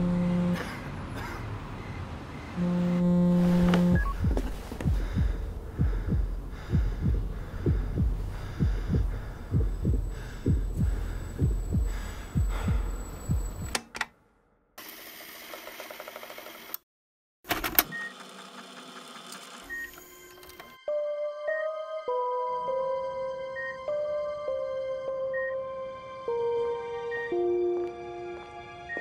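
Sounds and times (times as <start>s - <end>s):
low hum: 2.6s - 13.7s
heartbeat thuds: 3.7s - 13.7s.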